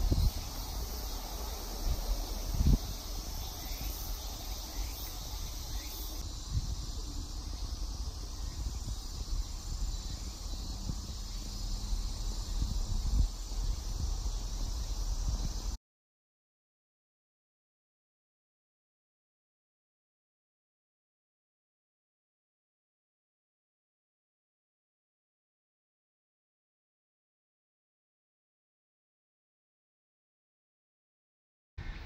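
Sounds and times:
insects chirring: 0.0 - 15.8.

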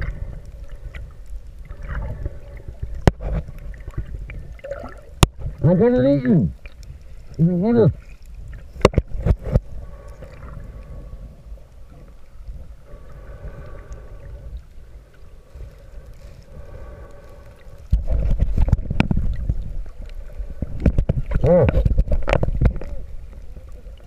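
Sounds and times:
faint steady hum: 0.0 - 24.0
water rumbling against camera: 0.0 - 24.0
underwater knocks: 8.8 - 9.7, 20.6 - 22.9.

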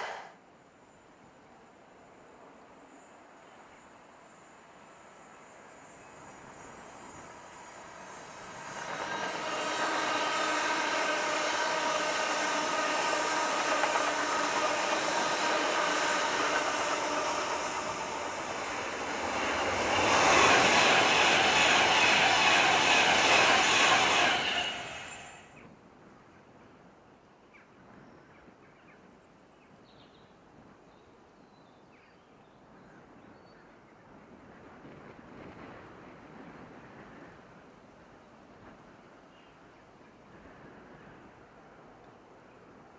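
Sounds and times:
electric trains passing: 0.0 - 0.3, 0.9 - 25.6.

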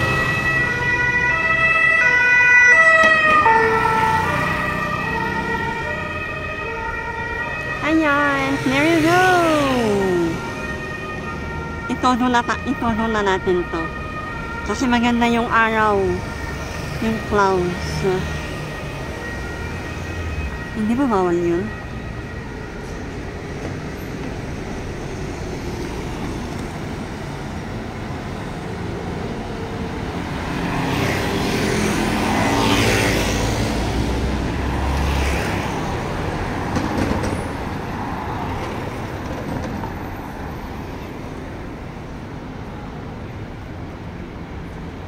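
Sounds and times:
city street traffic: 0.0 - 45.0.

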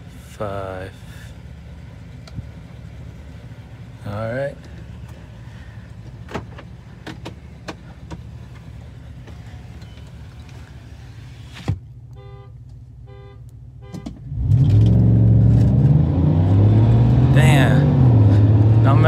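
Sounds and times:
truck engine idling: 0.0 - 13.9
engine revving at full throttle: 14.3 - 19.0.

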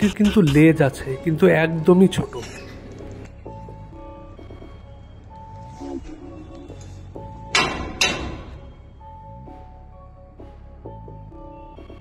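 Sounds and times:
background music held tones: 0.0 - 12.0.

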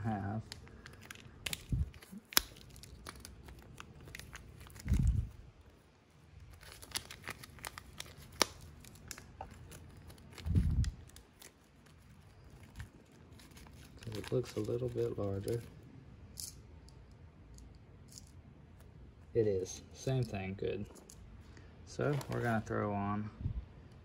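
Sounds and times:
plastic packaging crinkling: 0.2 - 15.8, 22.0 - 22.7.

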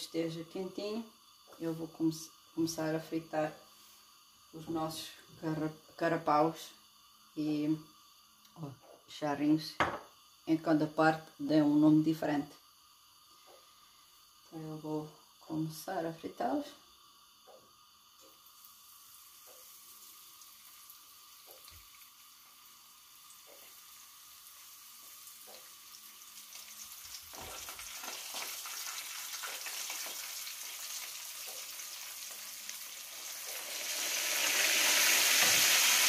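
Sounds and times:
fish frying in oil: 18.0 - 36.0.

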